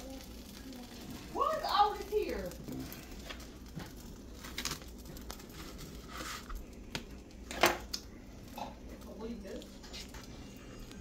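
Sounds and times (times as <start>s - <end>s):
tortilla wrap crinkling and tearing: 2.3s - 8.1s.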